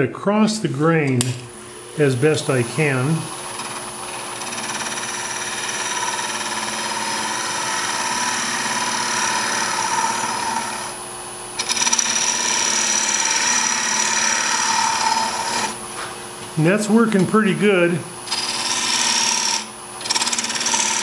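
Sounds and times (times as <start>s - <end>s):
lathe running: 1.5s - 16.0s, 16.7s - 21.0s
gouge cutting wood on lathe: 1.8s - 11.0s, 11.6s - 15.8s, 18.3s - 21.0s.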